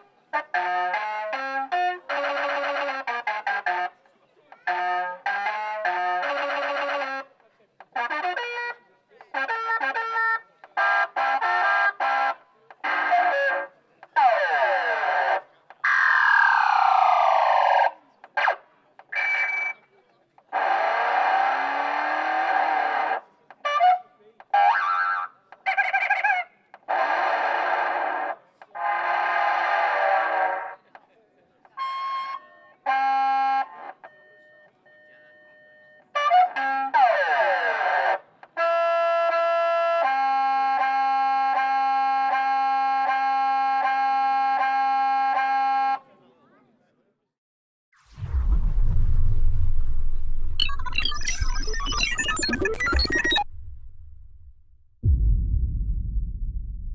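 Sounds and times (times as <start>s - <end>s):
electronic sound effects horn: 50.6s - 55.2s.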